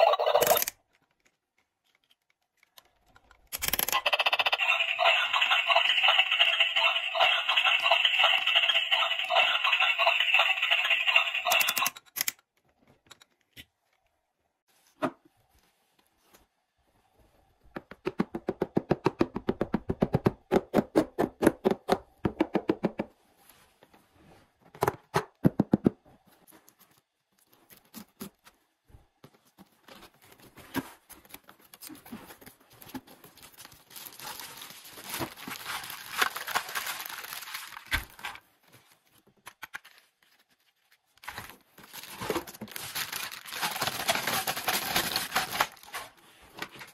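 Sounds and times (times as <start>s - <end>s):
packaging tearing and crinkling: 33.2s - 38.4s, 41.2s - 46.1s.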